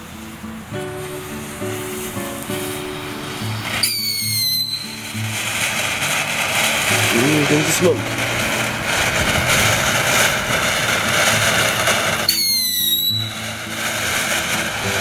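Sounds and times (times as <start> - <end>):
firework fountain hissing: 0.0 - 15.0
short high whistle: 3.4 - 5.4, 12.2 - 13.5.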